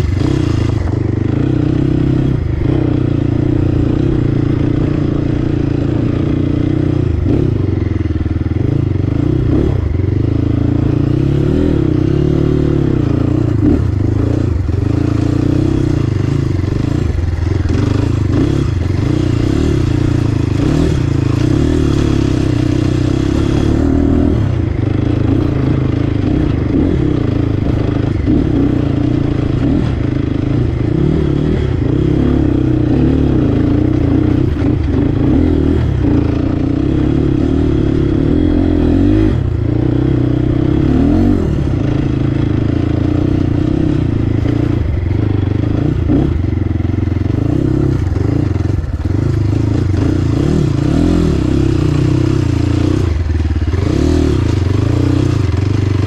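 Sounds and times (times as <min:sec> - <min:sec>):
dirt bike engine running: 0:00.0 - 0:56.0.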